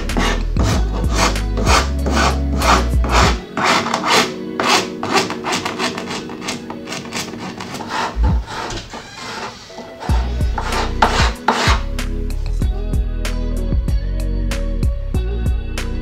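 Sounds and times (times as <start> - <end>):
hand file scraping panel edge: 0.0 - 11.9.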